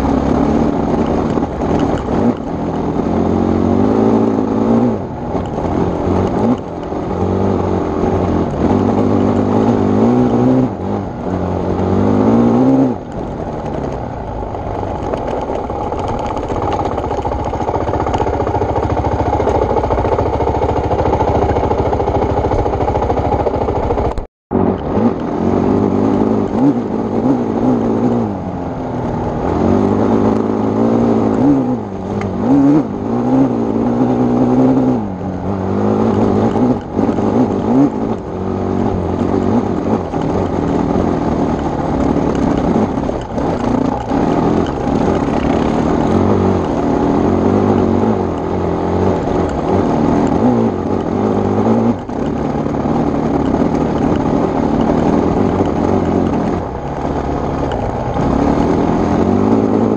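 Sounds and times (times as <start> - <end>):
motorcycle engine revving under load: 0.0 - 59.9.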